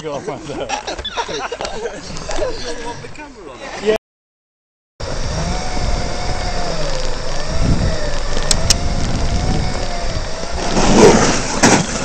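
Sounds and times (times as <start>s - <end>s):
electric drive whining: 5.0s - 10.8s
sharp clicks: 8.0s - 9.9s.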